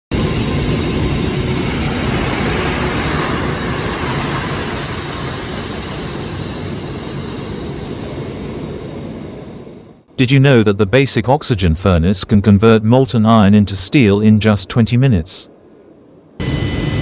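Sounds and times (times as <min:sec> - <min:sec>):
loud steady rushing noise: 0:00.1 - 0:10.6
deep rumble: 0:00.1 - 0:15.0
high hiss: 0:00.3 - 0:09.5.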